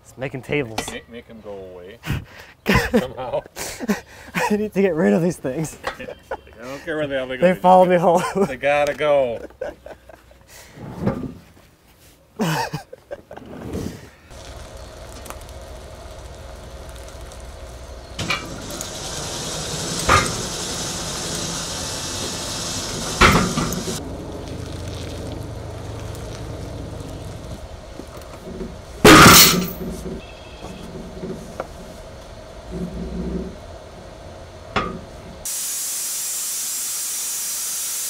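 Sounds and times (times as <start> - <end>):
mechanical hum: 13.4 - 38.0
metal clanks: 18.2 - 20.6, 23.0 - 24.0, 28.1 - 30.2, 34.7 - 35.1
loud bang: 29.0 - 30.0.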